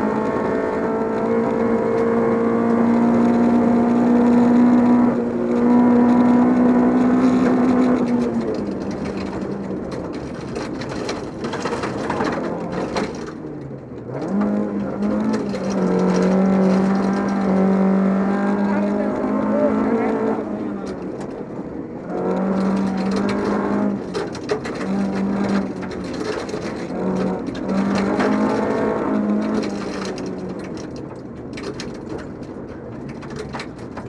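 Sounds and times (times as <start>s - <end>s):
gravel rattling against car: 0.0s - 34.0s
rally car engine revving: 0.0s - 34.0s.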